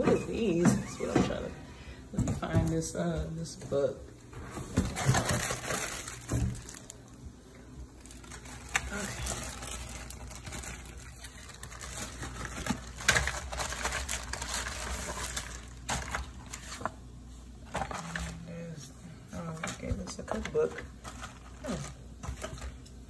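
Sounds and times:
plastic packaging crinkling: 4.5 - 18.5, 19.5 - 23.0.

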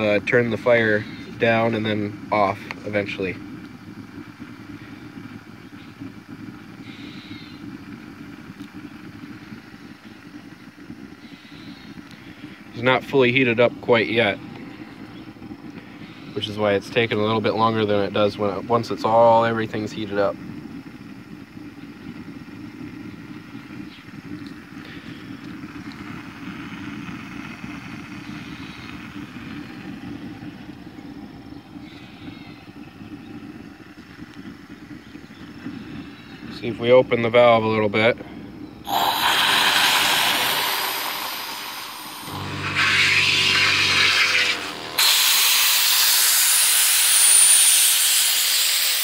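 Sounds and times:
faint hiss: 0.0 - 49.0
gas burner low rumble: 0.0 - 49.0
brief high whine: 38.8 - 49.0.

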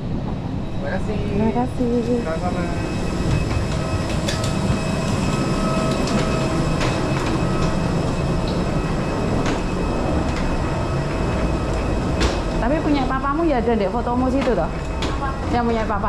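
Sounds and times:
suitcase wheels rolling: 2.9 - 16.0
footsteps: 3.1 - 13.4.

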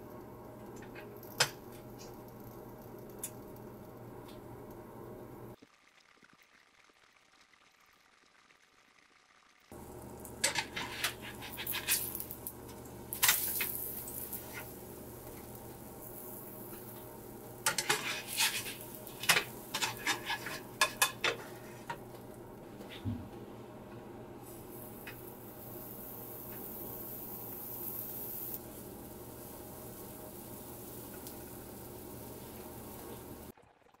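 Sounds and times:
pancake sizzling: 0.0 - 22.6, 24.4 - 33.6
utensils clinking on frying pan: 10.4 - 12.4, 17.6 - 22.0.

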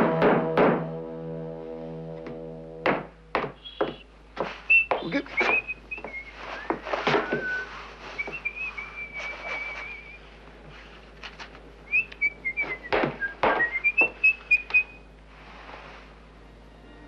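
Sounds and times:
sharp knocks: 0.0 - 1.0, 2.2 - 5.6, 12.7 - 14.2
man whistling a tune: 3.6 - 4.0, 4.7 - 10.2, 11.9 - 15.0.

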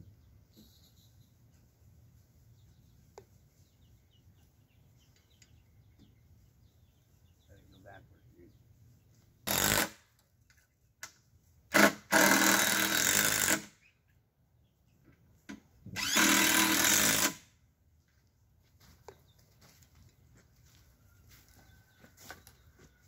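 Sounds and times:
cordless drill driving into wood: 9.5 - 10.0, 11.7 - 13.8, 15.9 - 17.5.

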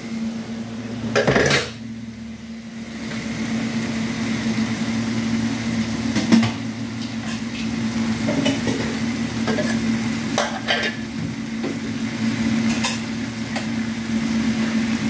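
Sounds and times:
gas stove hum: 0.0 - 15.0
food frying hiss: 2.9 - 15.0
metal pans clattering: 8.2 - 9.8, 10.4 - 11.0.

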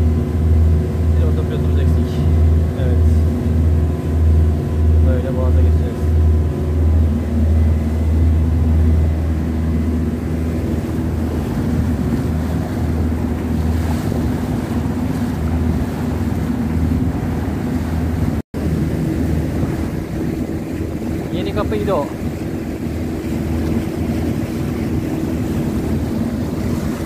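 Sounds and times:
boat engine drone: 0.0 - 27.0
water rushing along hull: 0.0 - 27.0
wind buffeting microphone: 0.0 - 27.0.

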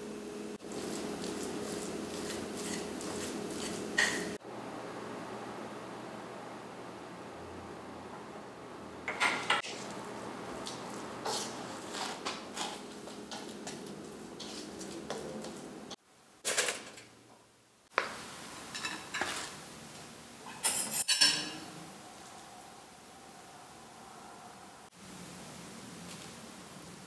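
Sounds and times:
spoon clinking against ceramic bowl: 20.5 - 21.7.

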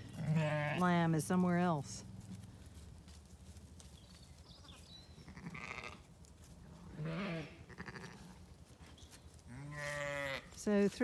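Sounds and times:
sheep bleating: 0.1 - 0.9, 5.3 - 6.0, 6.9 - 8.3, 9.5 - 10.5.

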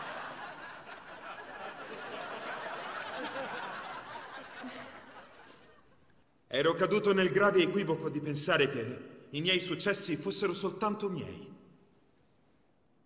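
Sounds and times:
studio audience laughing: 0.0 - 6.1.

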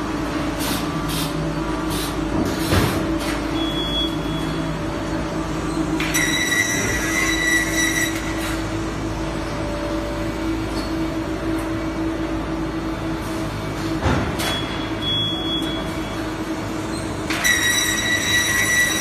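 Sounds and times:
factory machinery humming: 0.0 - 19.0
high squeal: 6.1 - 8.4, 16.9 - 19.0.

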